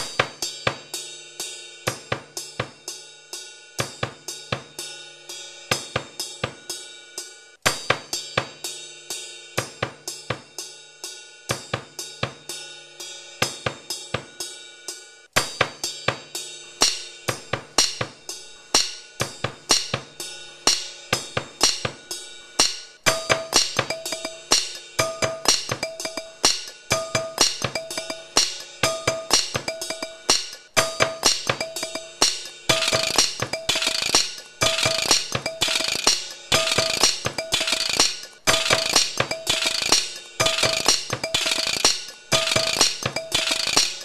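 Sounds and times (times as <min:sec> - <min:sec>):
drum kit playing a beat: 0:00.0 - 0:03.0, 0:03.8 - 0:05.0, 0:05.7 - 0:06.8, 0:07.6 - 0:10.7, 0:11.5 - 0:12.6, 0:13.4 - 0:14.6, 0:15.3 - 0:44.0
cymbals ringing: 0:15.4 - 0:44.0.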